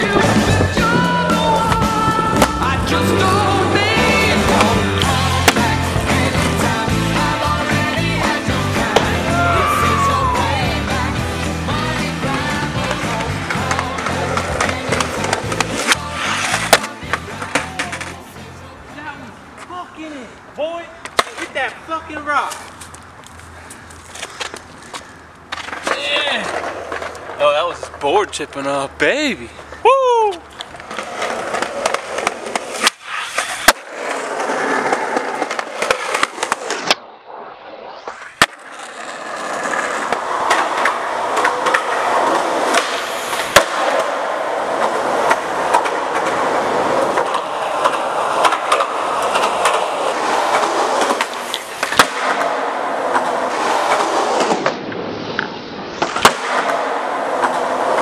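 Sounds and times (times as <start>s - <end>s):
skateboard wheels rolling on concrete: 0.0s - 58.0s
skateboard clacking on ground: 11.9s - 18.6s, 20.9s - 21.8s, 22.4s - 28.2s, 30.4s - 37.0s, 38.4s - 58.0s.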